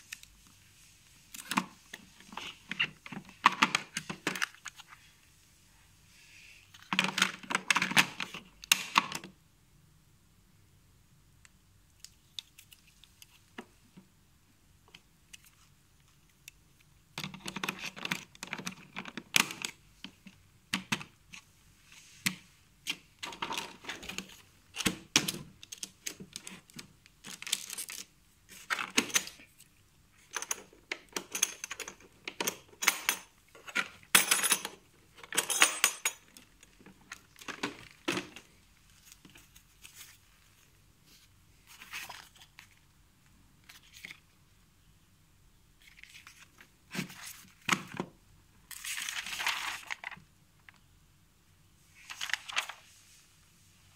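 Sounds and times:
plastic tool cases clicking and clattering: 1.4 - 4.8, 6.8 - 9.3, 30.3 - 38.5.

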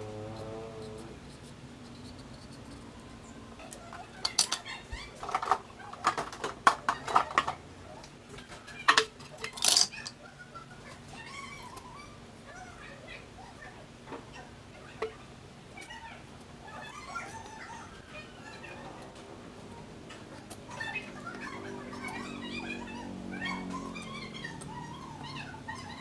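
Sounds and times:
dishes clattering on counter: 5.2 - 7.6.

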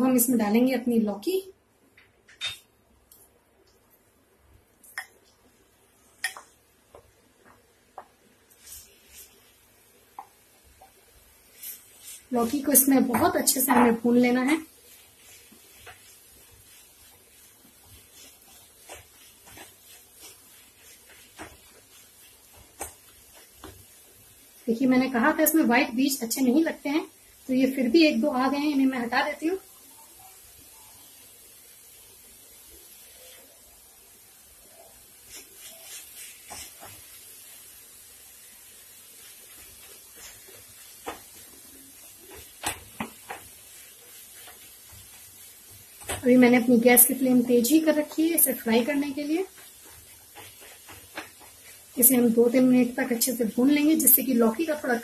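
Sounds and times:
frying hiss: 0.0 - 55.0
spatula tapping pan: 6.2 - 8.2, 17.0 - 24.0, 40.2 - 46.5, 48.9 - 51.9.

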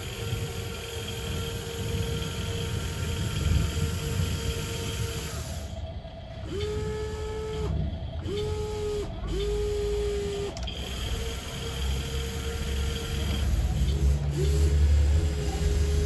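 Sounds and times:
toy electric motors whining: 6.4 - 16.0.

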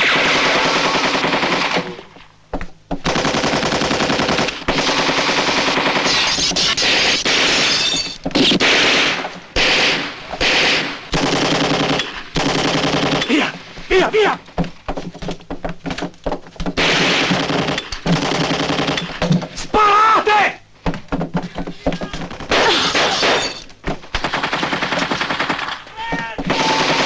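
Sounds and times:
automatic gunfire: 0.0 - 2.0, 3.0 - 7.8, 8.4 - 13.3, 16.8 - 19.2, 24.1 - 25.9, 26.5 - 27.0.

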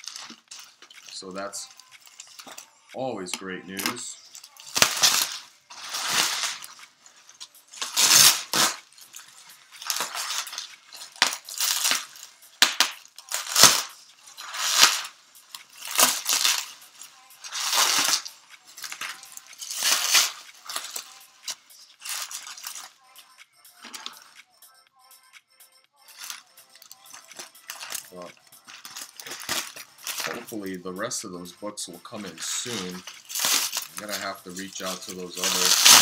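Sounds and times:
package scraping and tearing: 7.8 - 16.8, 17.4 - 22.9, 27.3 - 30.4, 32.4 - 36.0.

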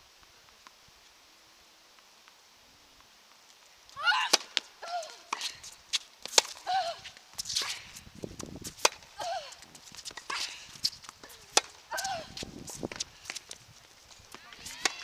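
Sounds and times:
tennis ball struck by racket: 4.3 - 4.6, 6.3 - 6.6, 8.7 - 9.0, 11.5 - 12.1, 14.7 - 15.0.

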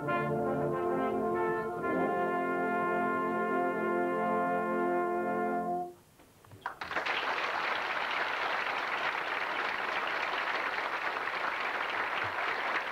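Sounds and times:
brass band chord: 0.0 - 6.0
audience applause: 6.6 - 12.9.

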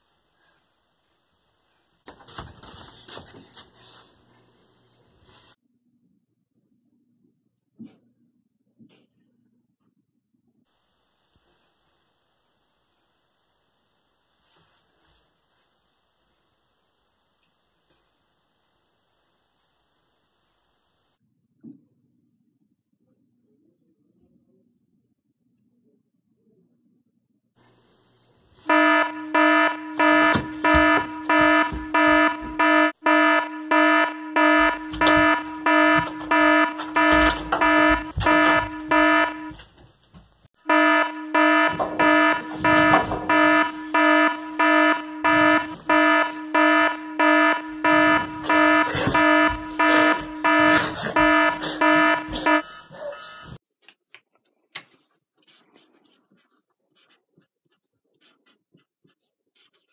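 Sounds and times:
timer alarm beeping: 28.7 - 39.6, 40.7 - 52.7.

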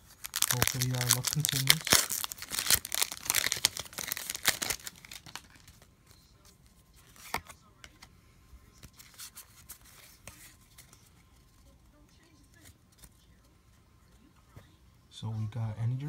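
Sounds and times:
foil wrapper tearing and crinkling: 0.0 - 5.8
cards rustling: 0.0 - 13.6.

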